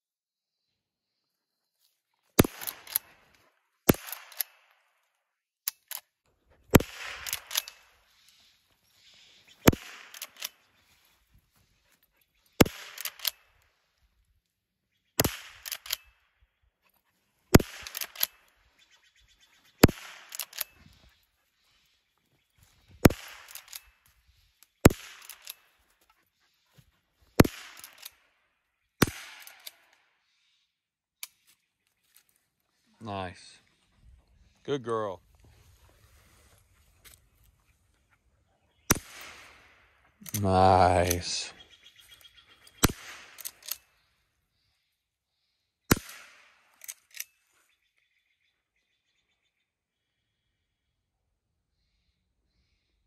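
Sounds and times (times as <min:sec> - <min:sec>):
rifle shots with echo: 0:02.4 - 0:03.1, 0:06.7 - 0:07.9, 0:12.6 - 0:13.4, 0:17.5 - 0:18.4, 0:19.8 - 0:20.7, 0:27.4 - 0:28.2, 0:38.9 - 0:39.8, 0:42.8 - 0:43.8, 0:45.9 - 0:46.6
rifle action clicks: 0:02.4 - 0:03.2, 0:07.0 - 0:07.9, 0:09.7 - 0:10.6, 0:12.6 - 0:13.5, 0:15.2 - 0:16.1, 0:17.6 - 0:18.5, 0:19.8 - 0:20.8, 0:23.0 - 0:23.9, 0:24.9 - 0:25.6, 0:27.4 - 0:28.2, 0:29.2 - 0:29.9, 0:42.8 - 0:43.9, 0:46.8 - 0:47.4
rifle lever clicks: 0:10.1 - 0:10.6, 0:12.9 - 0:13.4, 0:15.5 - 0:16.0, 0:17.8 - 0:18.4, 0:20.3 - 0:20.8, 0:23.4 - 0:23.9, 0:43.4 - 0:43.8.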